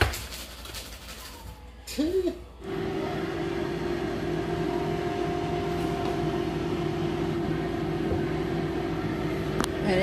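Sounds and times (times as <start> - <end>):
air fryer fan humming: 2.6 - 10.0.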